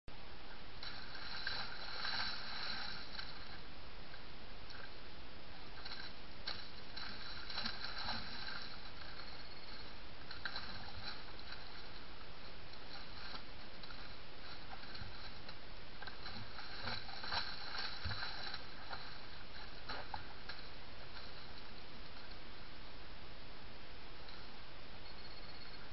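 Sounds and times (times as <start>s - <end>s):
steady background hiss: 0.1s - 25.9s
mud and water splashing: 0.8s - 3.8s, 5.6s - 22.4s.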